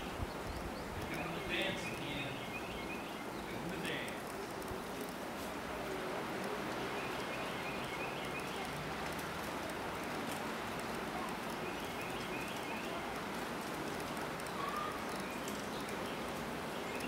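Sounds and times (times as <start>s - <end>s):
distant bird chirping: 0.0s - 4.8s, 6.4s - 9.4s, 11.3s - 17.0s
steady outdoor hiss: 0.0s - 17.0s.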